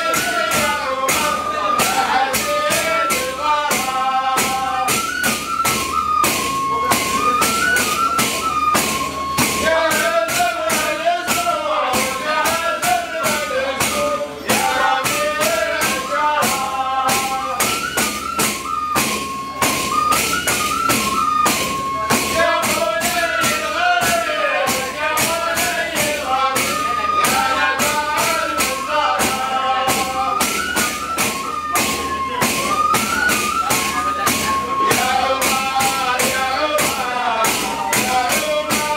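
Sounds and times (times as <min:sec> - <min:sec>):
men chanting: 0:00.0 - 0:05.1, 0:09.4 - 0:17.9, 0:22.1 - 0:30.8, 0:34.4 - 0:38.9
hand-beaten frame drums: 0:00.0 - 0:38.9.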